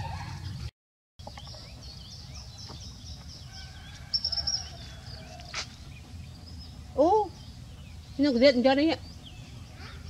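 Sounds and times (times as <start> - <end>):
low outdoor rumble: 0.0 - 10.0
small birds chirping: 0.3 - 10.0
bird high trill: 3.5 - 5.1.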